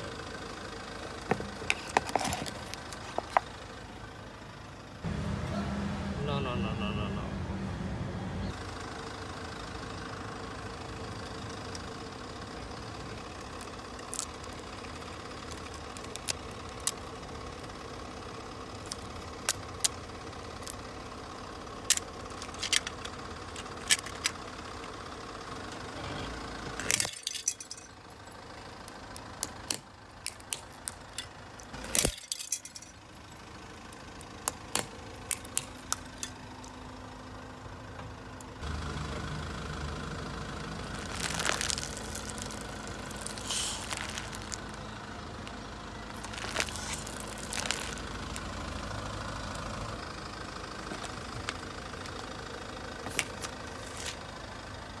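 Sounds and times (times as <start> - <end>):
car engine idling: 0.0 - 55.0
plastic cracking under a tyre: 1.2 - 3.5, 13.2 - 17.7, 21.8 - 24.9, 28.8 - 32.8, 33.9 - 36.8, 40.9 - 44.7, 46.1 - 48.6, 50.8 - 52.2, 53.0 - 54.2.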